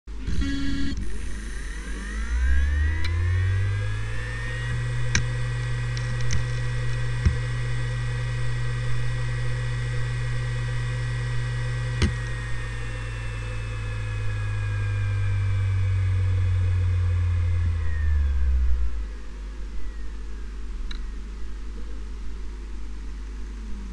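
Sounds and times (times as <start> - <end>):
hard drive whine: 0.1 - 23.9
low hum: 0.1 - 23.9
hard drive head clicks: 12.0 - 12.4.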